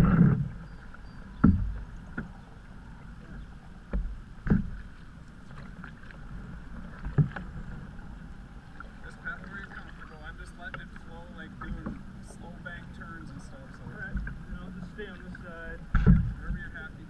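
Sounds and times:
paddle strokes in water: 0:00.0 - 0:17.0
dull knocks through hull: 0:01.4 - 0:02.3, 0:03.9 - 0:04.9, 0:15.9 - 0:16.7.

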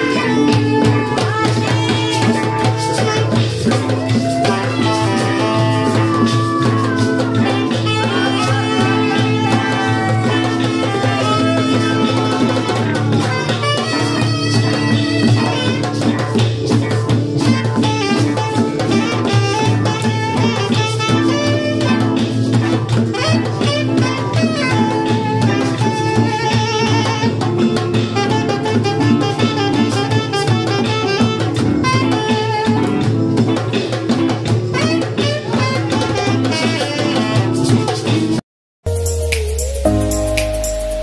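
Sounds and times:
bass line: 0:00.0 - 0:17.9, 0:38.8 - 0:41.0
saxophone melody: 0:00.0 - 0:33.9, 0:34.7 - 0:38.3, 0:38.9 - 0:41.0
guitar: 0:00.0 - 0:41.0
percussion beat: 0:00.0 - 0:41.0.

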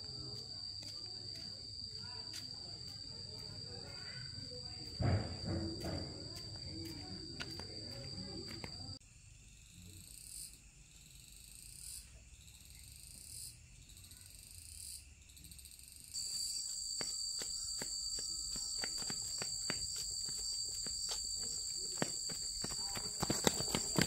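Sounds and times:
shrill insect drone: 0:00.0 - 0:24.0
faint rising insect calls: 0:09.4 - 0:24.0.

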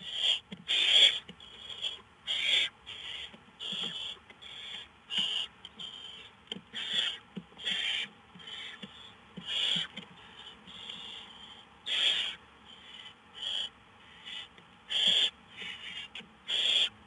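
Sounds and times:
owl chicks hissing begging calls: 0:00.0 - 0:17.0.

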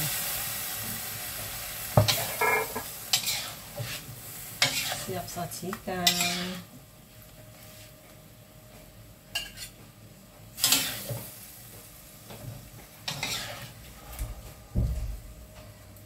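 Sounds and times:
faint sauce sizzling: 0:00.0 - 0:06.7, 0:10.5 - 0:14.5
metal ladle scraping wok: 0:02.0 - 0:04.0, 0:04.6 - 0:05.1, 0:06.0 - 0:06.6, 0:10.6 - 0:11.2, 0:13.1 - 0:13.8.

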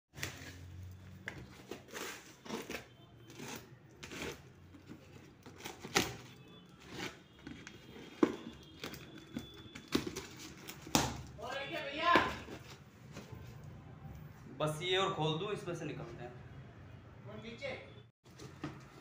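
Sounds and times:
packaging rustling and tearing: 0:00.2 - 0:11.4.

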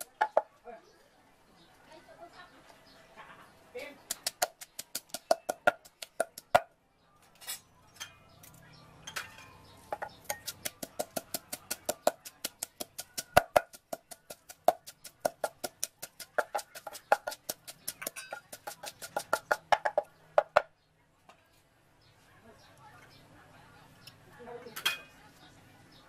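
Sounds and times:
pestle pounding in mortar: 0:04.1 - 0:06.7, 0:09.9 - 0:20.7.

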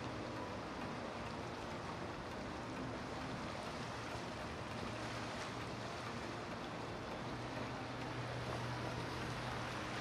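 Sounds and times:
boat engines humming: 0:00.0 - 0:10.0
wash of churned water: 0:00.0 - 0:10.0.

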